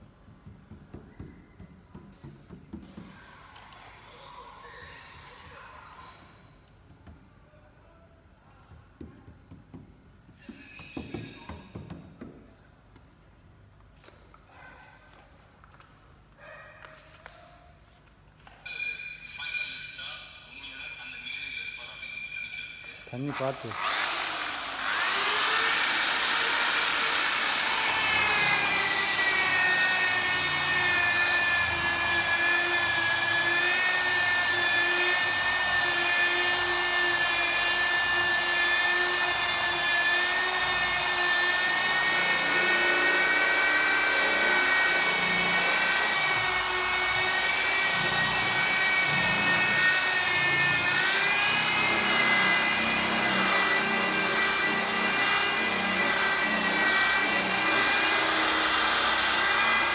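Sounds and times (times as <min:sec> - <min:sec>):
electric polisher motor whine: 0:23.2 - 0:59.9.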